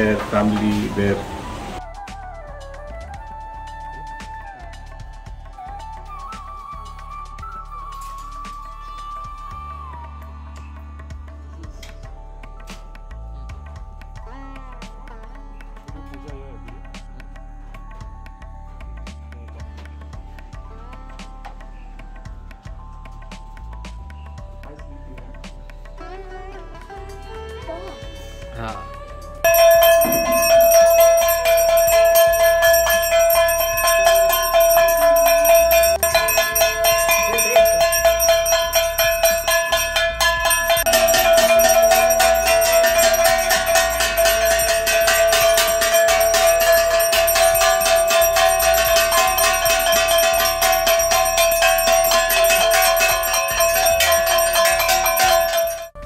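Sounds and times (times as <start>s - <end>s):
hand bell rung rapidly: 29.4s - 56.0s.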